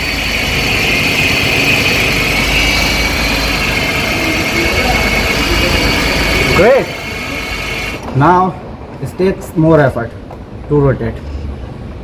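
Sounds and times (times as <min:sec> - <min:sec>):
truck engine idling: 0:00.0 - 0:08.0
high whine: 0:00.0 - 0:08.8.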